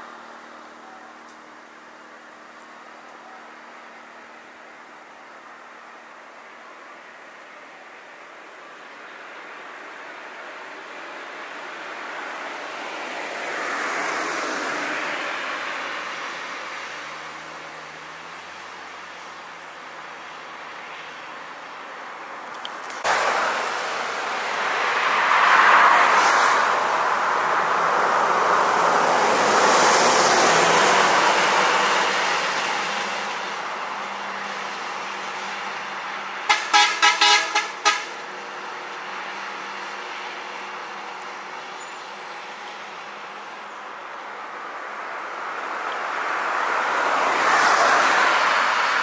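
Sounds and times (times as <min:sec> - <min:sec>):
cars driving past: 0:09.2 - 0:49.0
car horn short toots: 0:36.5 - 0:38.1.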